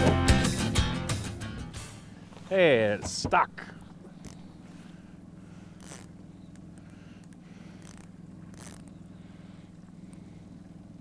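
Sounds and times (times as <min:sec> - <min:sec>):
outboard motor idling: 0:00.0 - 0:11.0
short raspy zips: 0:05.5 - 0:09.0.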